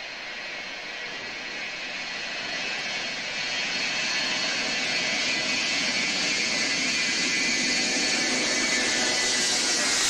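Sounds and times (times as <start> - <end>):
jet engines roaring with whine: 0.0 - 10.0.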